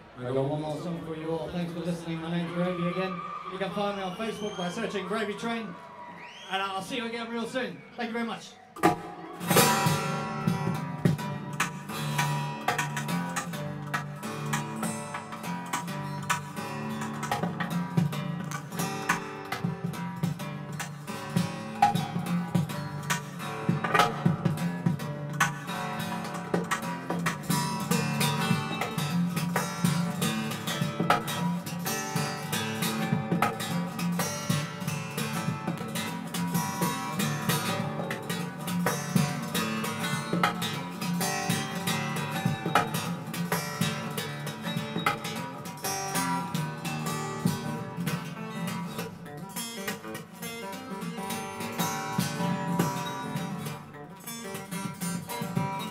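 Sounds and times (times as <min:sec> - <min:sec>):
acoustic guitar playing: 0:08.8 - 0:55.9.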